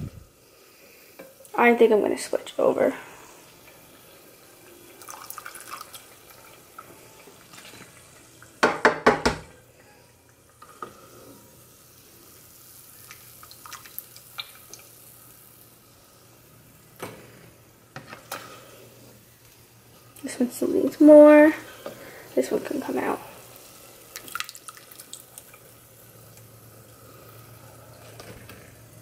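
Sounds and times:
oil bubbling and crackling: 0.2 - 29.0
spoon knocking against pot: 8.6 - 9.5.

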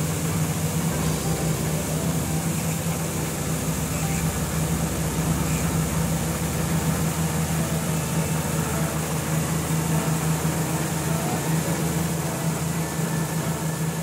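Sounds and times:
cartoon snowmobile engine hum: 0.0 - 14.0.

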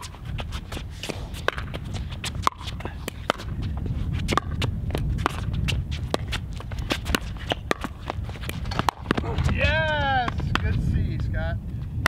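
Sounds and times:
shoes scuffing on hard court: 0.0 - 10.8
low wind rumble: 0.0 - 12.0
paddles hitting plastic ball: 1.0 - 3.6, 4.3 - 10.8.

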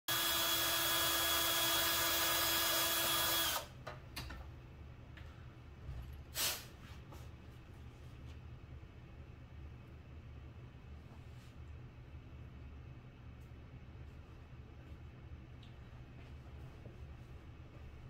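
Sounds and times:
cordless drill whining: 0.1 - 3.7.

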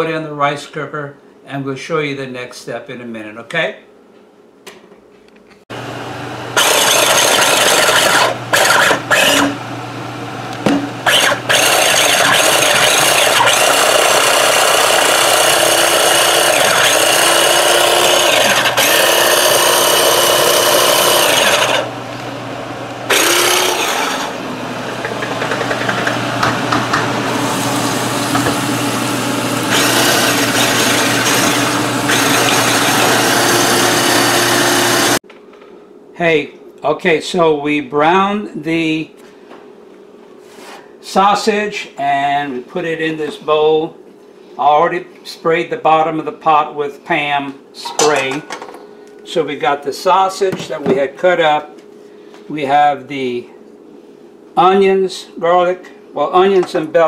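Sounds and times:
food processor motor running: 5.7 - 35.2.

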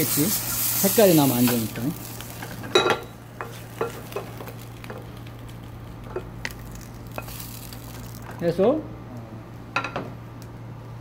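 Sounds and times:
food sizzling in a saucepan: 0.0 - 8.3.

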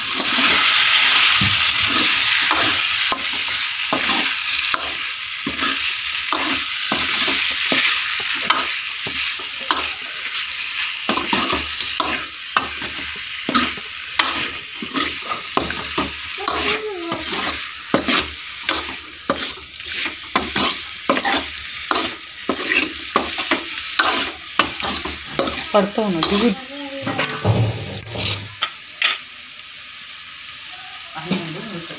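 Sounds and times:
meat sizzling in a pan: 0.0 - 31.9
metal ladle scraping a pan: 16.4 - 29.2.

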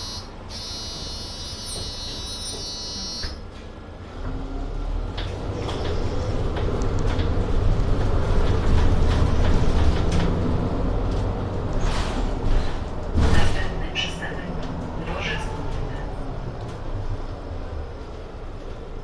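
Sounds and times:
bus engine rumbling: 0.0 - 19.0
rattles and clicks in cabin: 5.1 - 17.4.

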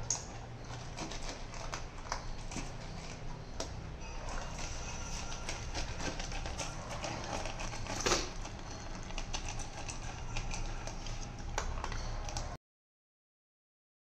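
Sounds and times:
dog crunching kibble: 0.0 - 12.6
kibble clinking on metal bowl: 4.1 - 12.5.

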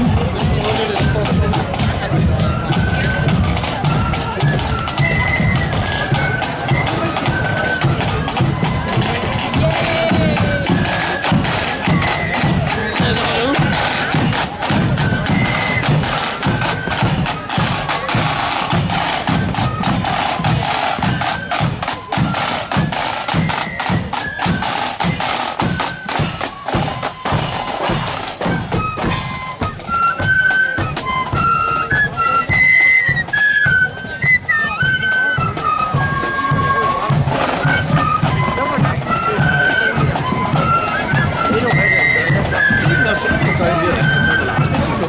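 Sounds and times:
side drums and bass drum: 0.0 - 31.5
flute melody: 0.0 - 45.0.

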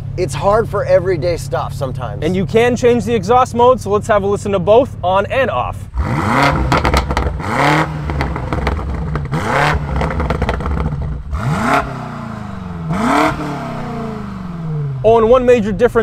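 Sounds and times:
car engine idling: 0.0 - 16.0
car engine revving: 0.0 - 16.0
exhaust crackles and pops: 5.9 - 15.9.

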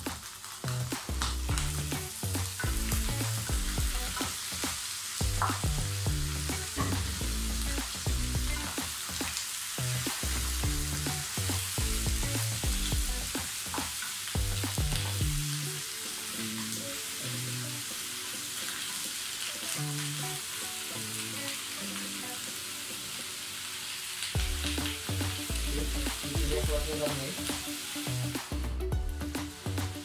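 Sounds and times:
background music with bass line: 0.0 - 13.5, 14.4 - 15.8, 24.4 - 30.0
meat sizzling in a frying pan: 0.0 - 30.0.

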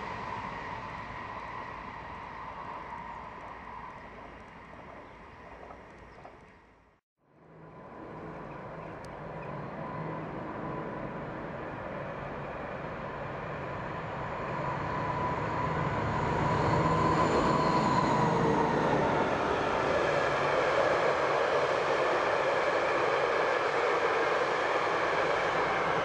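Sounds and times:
train rumbling past: 0.0 - 26.0.

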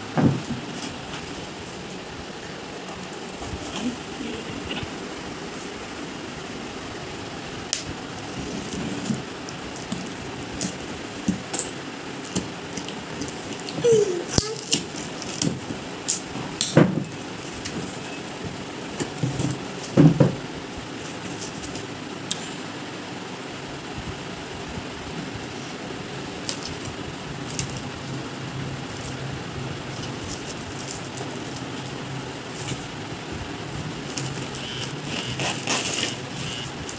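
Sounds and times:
faint low hum: 0.0 - 36.9
plastic wrapping crinkling: 28.9 - 32.9, 33.7 - 36.9.

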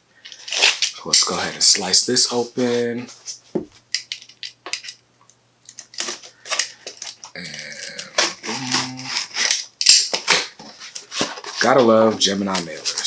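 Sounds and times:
cardboard rustling: 10.2 - 13.0.

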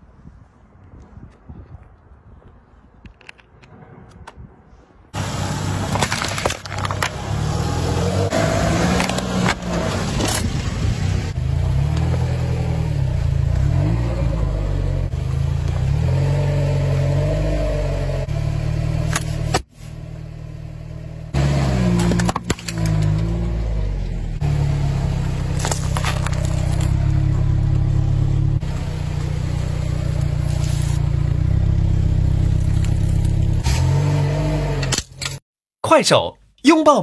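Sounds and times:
car engine running: 5.2 - 34.9
packaging crunching under tyre: 5.8 - 7.5, 25.4 - 27.2, 30.1 - 31.1.

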